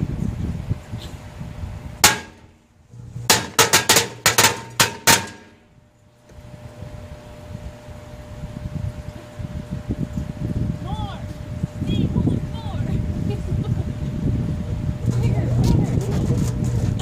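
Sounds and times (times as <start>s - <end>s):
firecrackers banging in microwave: 2.0s - 5.6s.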